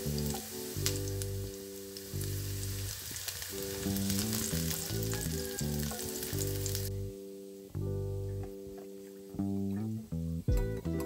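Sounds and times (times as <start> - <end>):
food sizzling in hot oil: 0.0 - 7.5
guitar music: 0.0 - 11.0.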